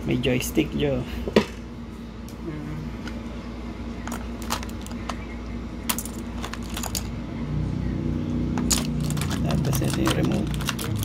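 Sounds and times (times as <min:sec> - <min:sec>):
steady low hum: 0:00.0 - 0:11.0
plastic parts clicking and tapping: 0:04.1 - 0:05.2, 0:08.6 - 0:11.0.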